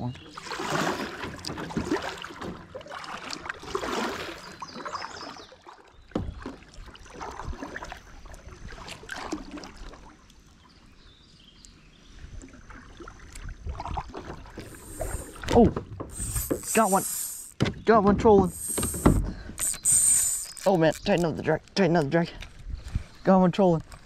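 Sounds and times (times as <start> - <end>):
kayak paddle swishing through water: 0.2 - 10.3, 12.1 - 17.6, 18.3 - 20.8.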